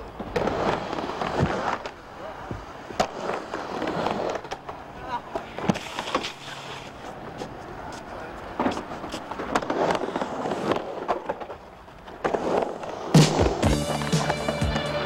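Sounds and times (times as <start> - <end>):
skateboard clacks and knocks: 0.0 - 15.0
skateboard wheels rolling on ramp: 0.0 - 15.0.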